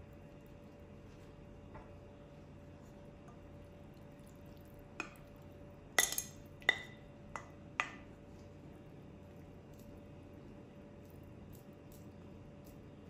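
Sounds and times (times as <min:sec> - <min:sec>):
wooden spoon tapping ceramic bowl: 0:06.0 - 0:08.1.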